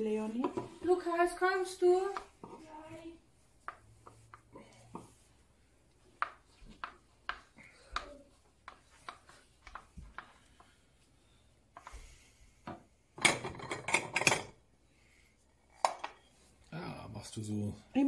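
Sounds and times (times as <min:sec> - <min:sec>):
wooden spoon tapping a bowl: 0:02.1 - 0:02.6, 0:03.6 - 0:05.1, 0:06.1 - 0:10.8
dishes clattering: 0:13.2 - 0:14.6.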